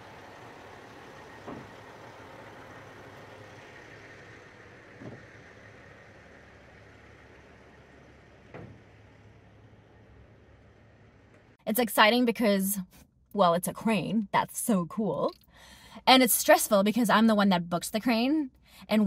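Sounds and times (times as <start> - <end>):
truck engine idling: 0.0 - 11.6.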